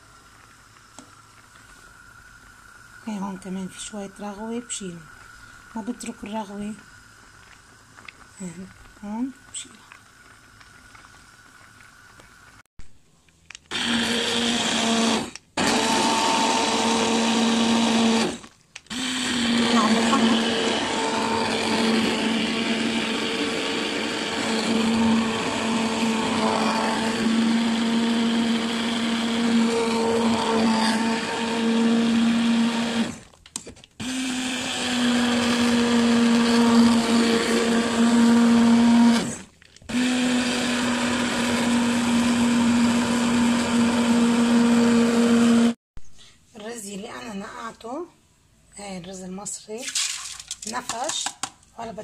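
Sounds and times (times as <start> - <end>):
hand blender motor hum: 13.7 - 33.2, 34.0 - 45.8.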